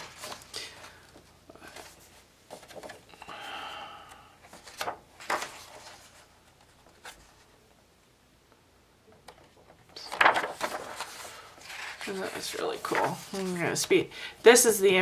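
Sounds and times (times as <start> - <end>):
paper pages rustling: 0.0 - 3.1, 4.4 - 7.6, 9.2 - 14.0.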